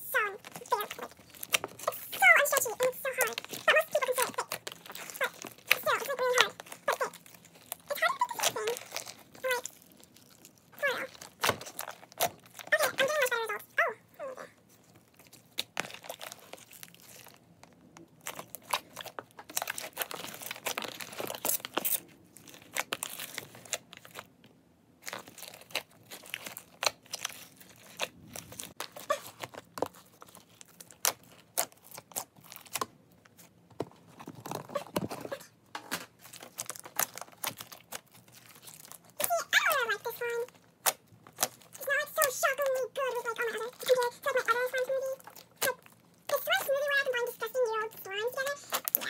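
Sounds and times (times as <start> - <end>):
slime squelching and popping: 0.1 - 13.6, 14.8 - 24.2, 36.1 - 46.7, 48.4 - 49.0.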